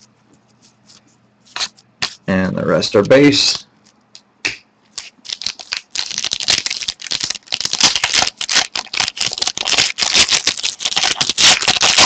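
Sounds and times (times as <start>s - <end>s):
cards and packaging rustling: 5.0s - 12.0s.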